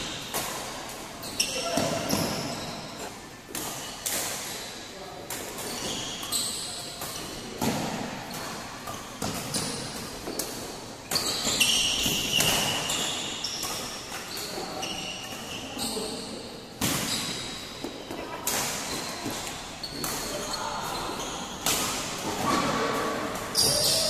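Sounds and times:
shoe squeaks on court: 1.2 - 3.1, 5.6 - 6.9, 11.1 - 16.3, 17.0 - 17.7, 18.9 - 21.6, 22.4 - 24.0
racket hitting shuttlecock: 5.3 - 14.5.

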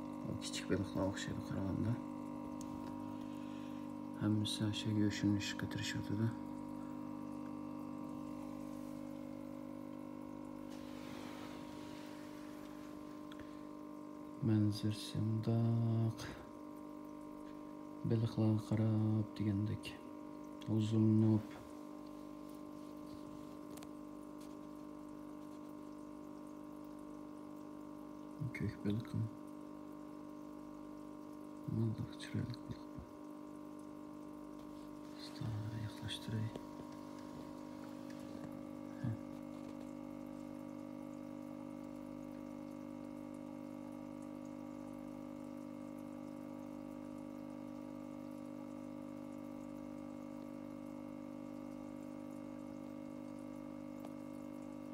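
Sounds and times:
air pump hum: 0.0 - 29.3, 31.0 - 45.9
aquarium sponge filter bubbling: 0.0 - 54.9.

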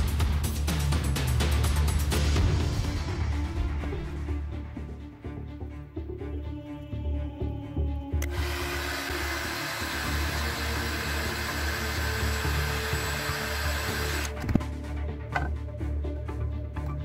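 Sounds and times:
heat gun blowing: 8.2 - 14.4.

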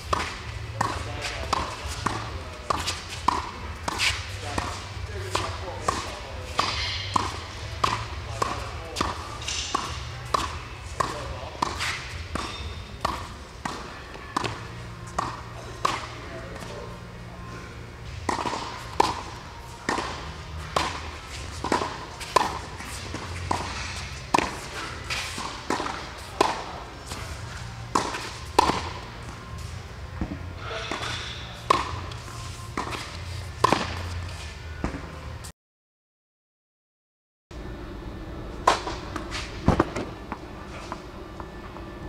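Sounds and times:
tennis ball struck by rackets: 0.0 - 16.7, 18.1 - 29.4, 30.2 - 34.2.

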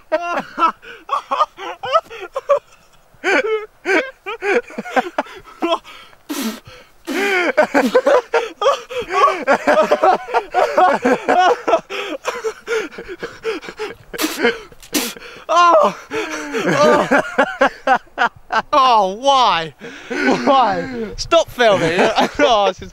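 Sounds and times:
person laughing hard: 0.0 - 18.6, 20.1 - 21.1, 21.7 - 22.6
gasping breaths: 3.2 - 9.5, 11.9 - 16.8, 19.8 - 21.2.

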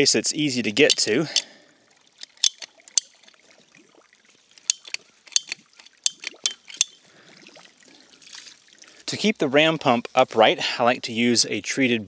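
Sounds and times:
pipe cutter clicking: 2.2 - 3.1, 4.6 - 7.0.

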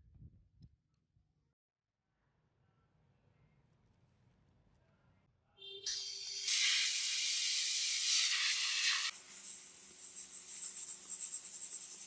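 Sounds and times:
compressed air spray hiss: 5.9 - 12.0.

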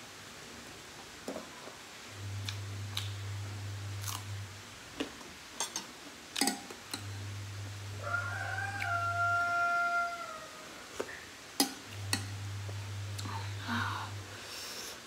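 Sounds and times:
utensils clinking against dishes: 5.6 - 7.1
low hum: 6.9 - 9.5, 11.8 - 14.4.

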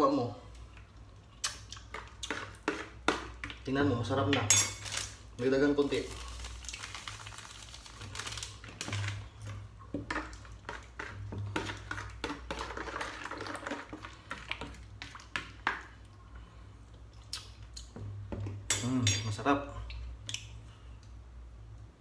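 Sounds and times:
liquid sloshing in a bowl: 5.9 - 18.6.

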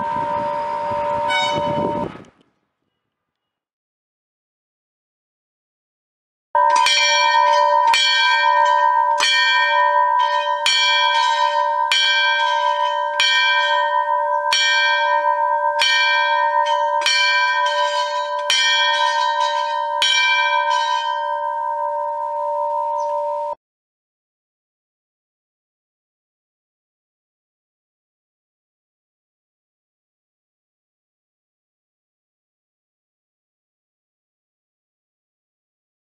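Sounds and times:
temple bell ringing: 0.0 - 2.0, 6.6 - 23.6.

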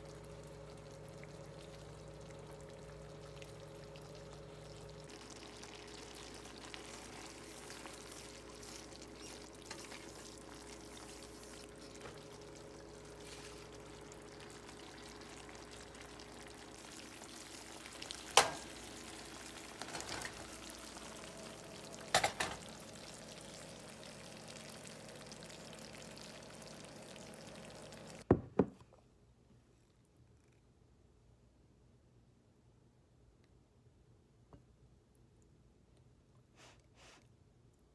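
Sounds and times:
steady hum: 0.0 - 28.2
sauce simmering and sizzling: 0.0 - 28.3.

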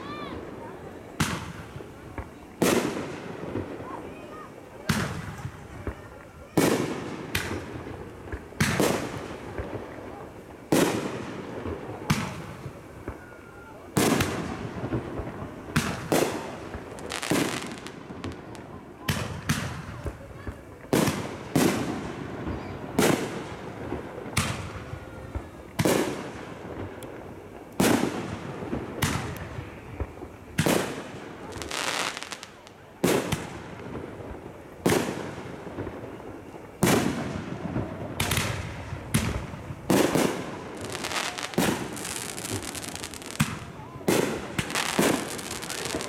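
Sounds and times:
firework crackling: 0.0 - 46.0
firework shells booming: 36.8 - 46.0.

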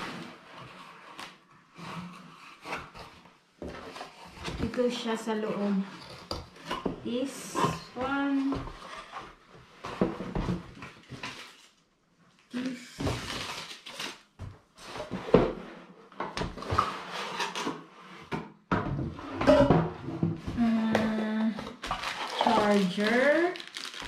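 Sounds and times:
cardboard and paper rustling: 7.8 - 11.8, 12.6 - 15.8, 20.4 - 24.0.

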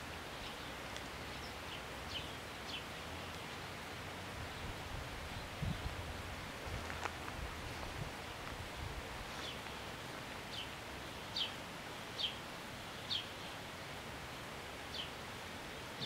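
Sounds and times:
wind through leaves: 0.0 - 16.0.

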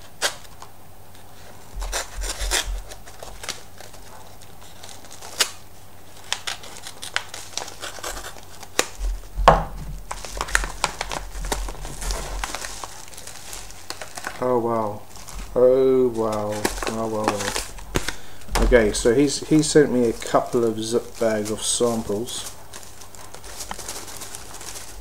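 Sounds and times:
knife slitting envelope: 6.2 - 9.0, 10.1 - 14.4, 15.1 - 18.2, 18.8 - 25.0.

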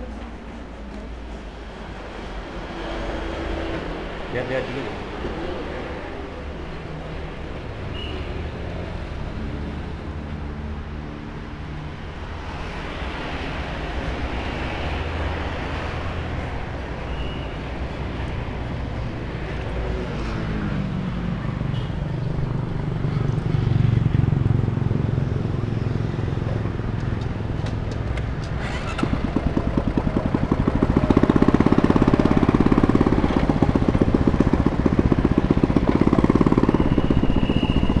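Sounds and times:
road traffic passing: 0.0 - 38.0
motor scooter engine: 23.3 - 38.0.

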